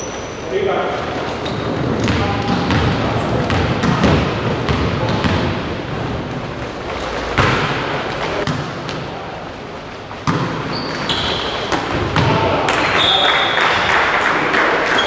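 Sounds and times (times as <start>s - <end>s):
sneakers squeaking on floor: 0.0s - 9.1s, 9.7s - 13.6s
volleyball hits echoing: 1.9s - 5.9s, 6.5s - 9.4s, 10.0s - 14.0s.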